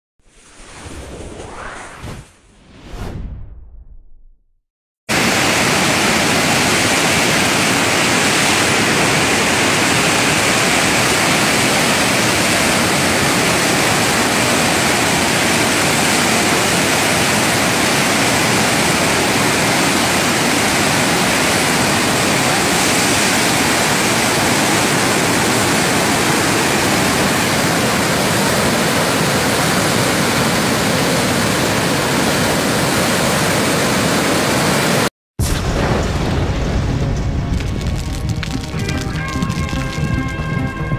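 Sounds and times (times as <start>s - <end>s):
water rushing over rocks: 5.1s - 35.1s.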